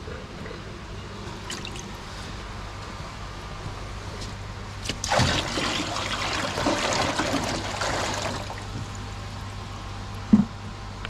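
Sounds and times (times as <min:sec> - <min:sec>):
water pouring and splashing: 0:04.9 - 0:09.0.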